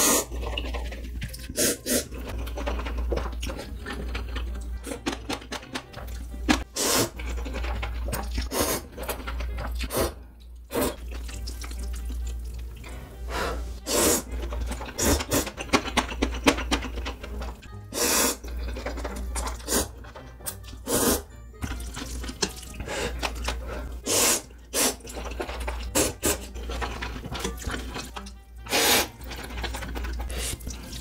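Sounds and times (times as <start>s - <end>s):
wet noodle slurps: 0.0s - 2.4s, 6.6s - 11.2s, 13.4s - 15.7s, 17.8s - 20.0s, 20.6s - 21.4s, 22.8s - 31.0s
chewing and smacking: 14.4s - 17.7s, 18.4s - 20.8s, 25.0s - 31.0s.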